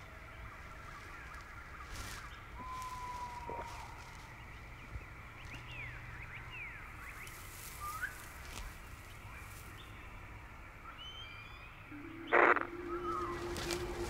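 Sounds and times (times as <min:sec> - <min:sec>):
bird chirps: 0:10.9 - 0:14.0
background hiss: 0:11.7 - 0:14.0.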